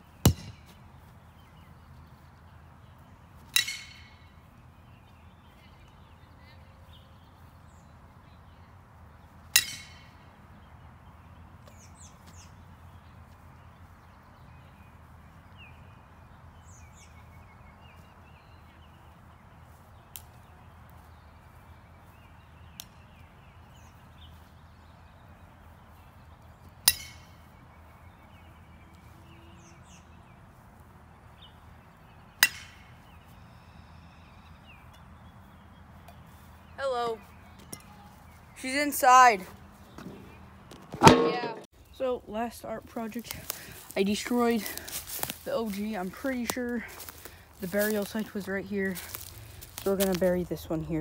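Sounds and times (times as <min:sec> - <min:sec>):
baseball bat cracks: 0:00.3 - 0:00.7, 0:03.5 - 0:04.2, 0:09.6 - 0:10.1, 0:32.4 - 0:32.9, 0:40.9 - 0:41.7.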